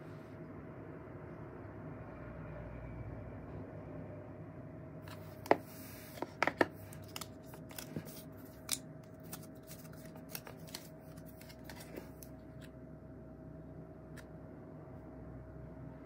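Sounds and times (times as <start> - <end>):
faint steady hum: 0.0 - 16.0
phone and packaging clicks and taps: 5.1 - 12.7.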